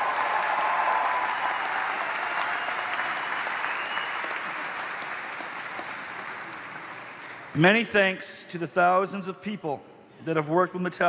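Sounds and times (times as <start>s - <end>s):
audience cheers: 0.0s - 4.8s
audience applause: 0.0s - 7.6s.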